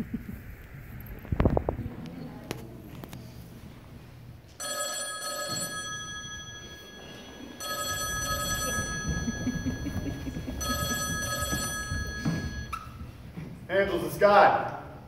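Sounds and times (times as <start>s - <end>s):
telephone ringing: 4.6s - 13.0s
children's feet on carpeted steps: 8.4s - 13.6s.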